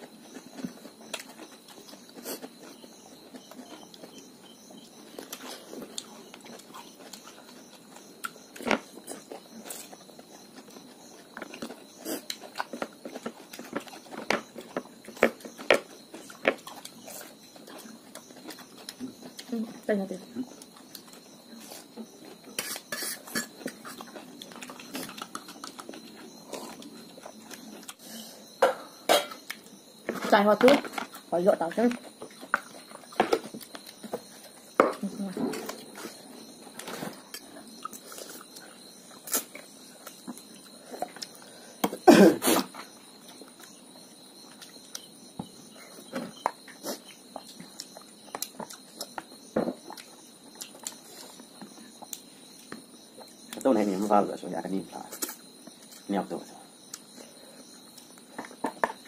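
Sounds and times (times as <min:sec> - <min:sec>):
chewing and mouth smacks: 0:23.8 - 0:28.0, 0:46.4 - 0:49.2, 0:49.8 - 0:51.4.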